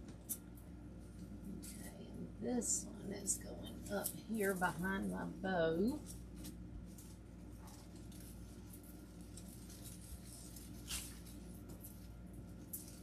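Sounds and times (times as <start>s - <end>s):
steady low hum: 0.0s - 13.0s
artificial foliage rustling: 1.0s - 13.0s.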